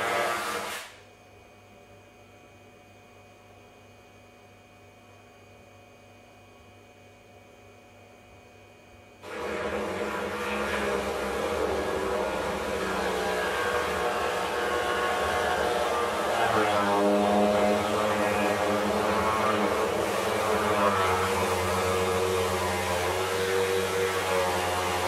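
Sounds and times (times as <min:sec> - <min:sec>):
chainsaw running: 0:09.2 - 0:25.0.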